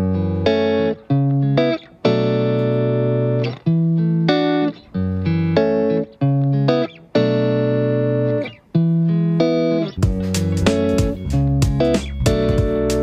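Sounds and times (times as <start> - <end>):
instrumental music with struck notes: 4.3 - 13.0.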